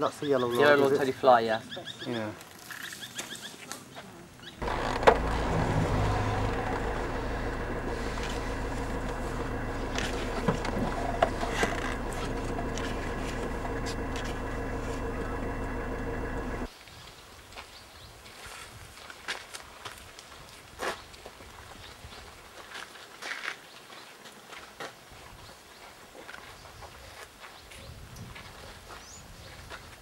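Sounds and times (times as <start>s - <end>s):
steady engine hum: 4.6s - 16.7s.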